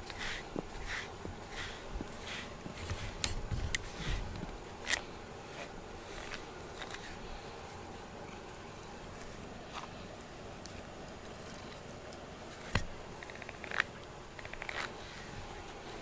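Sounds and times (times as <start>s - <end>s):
brush stroking cat fur: 0.0s - 8.4s.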